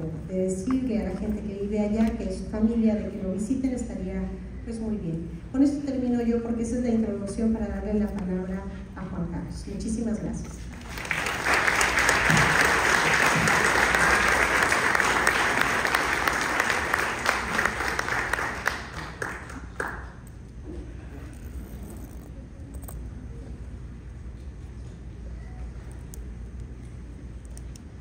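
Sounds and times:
audience applauding: 10.8 - 20.2.

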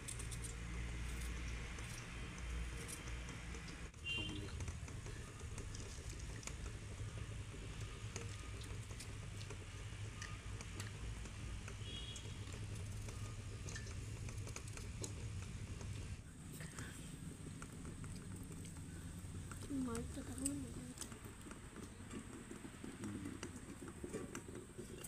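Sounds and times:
eggshell crackling as peeled: 0.0 - 3.9, 4.5 - 16.2.

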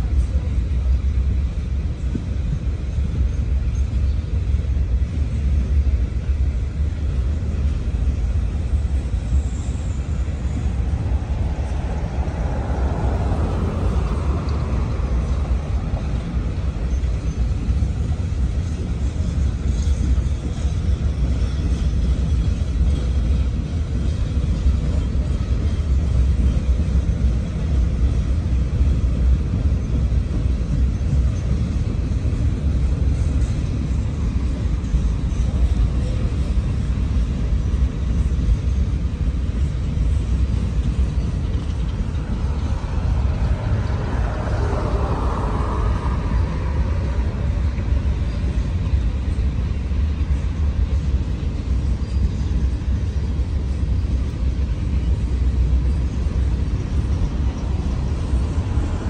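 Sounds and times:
freight train wheels rumbling on rails: 0.0 - 59.0
car passing on road: 10.0 - 16.9, 40.8 - 48.8, 57.0 - 59.0.

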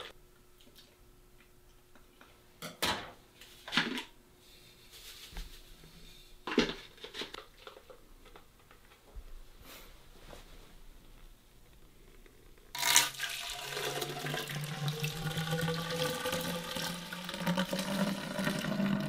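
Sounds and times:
liquid pouring into a pipe: 12.8 - 19.0.

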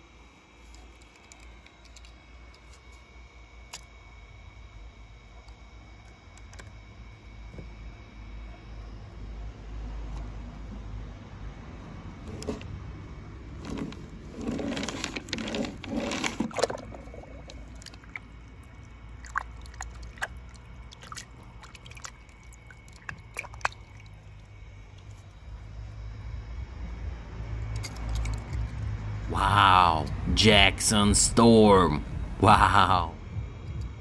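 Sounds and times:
water splashing in a plastic tub: 15.1 - 25.4
water dripping: 17.4 - 25.2.

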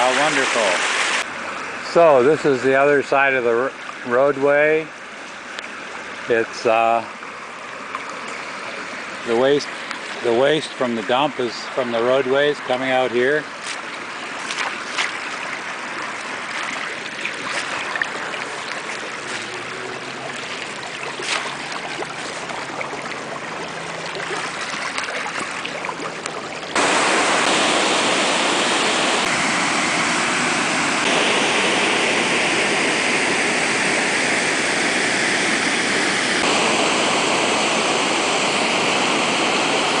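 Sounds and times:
waterfall rushing: 0.0 - 2.8, 15.2 - 26.1, 26.7 - 40.0
water running in a ditch: 0.0 - 29.4.

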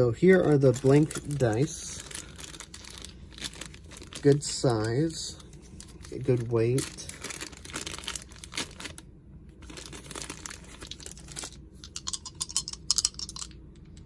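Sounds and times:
plastic bag crinkling: 0.1 - 9.0, 9.6 - 13.5.

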